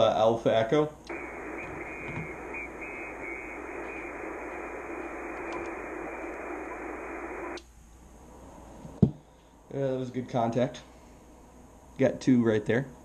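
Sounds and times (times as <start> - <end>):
shortwave radio static hissing: 1.1 - 7.6.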